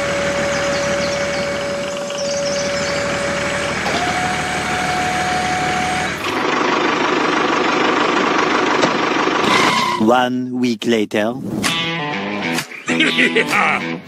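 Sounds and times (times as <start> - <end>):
engine with higher hum: 0.0 - 10.0
truck engine whining: 0.0 - 10.1.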